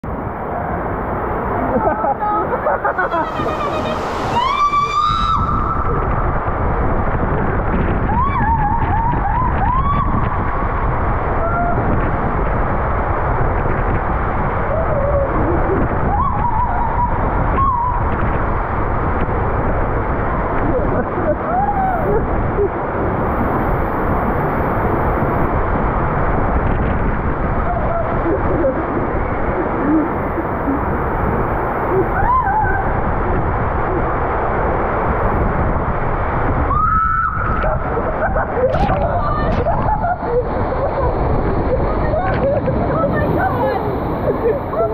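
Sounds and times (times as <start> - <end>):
water rushing through slide tube: 0.4 - 44.9
short wavering squeals: 3.0 - 6.4.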